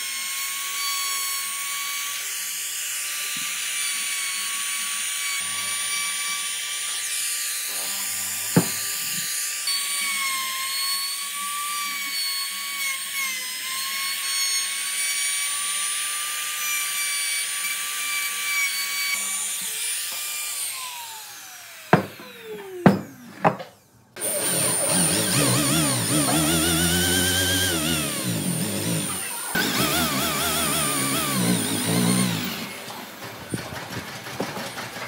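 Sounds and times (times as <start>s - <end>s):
router whining cutting wood: 0.0s - 34.8s
router spinning down: 19.0s - 34.0s.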